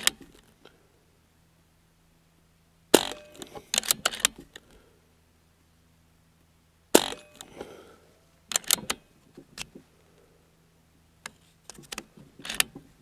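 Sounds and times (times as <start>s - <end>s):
air rifle shot crack: 2.9s - 4.0s, 6.9s - 7.8s
rifle action metallic clicks: 3.0s - 4.6s, 7.0s - 7.7s, 8.5s - 9.0s, 11.7s - 12.8s.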